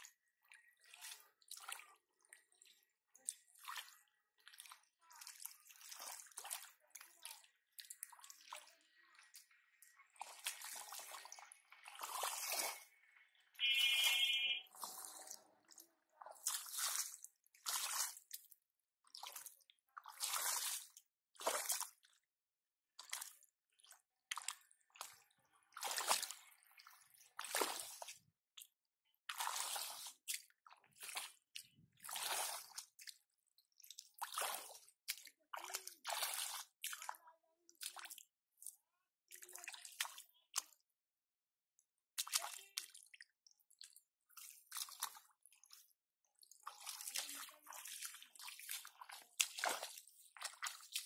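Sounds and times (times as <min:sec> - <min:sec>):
hands squelching in mud: 0:46.6 - 0:51.0.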